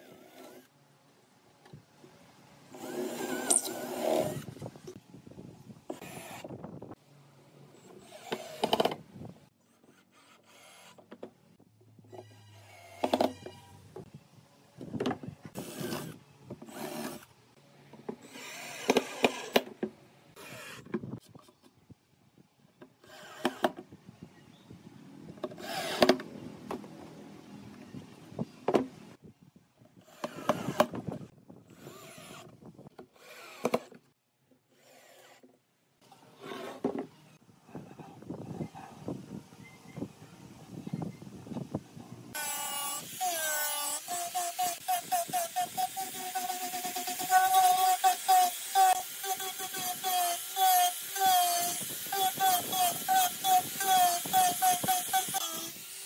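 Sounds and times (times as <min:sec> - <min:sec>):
cordless drill driving screws: 0:18.2 - 0:19.6, 0:25.5 - 0:26.2, 0:30.1 - 0:31.0, 0:31.7 - 0:32.5, 0:33.1 - 0:33.9, 0:42.4 - 0:56.0.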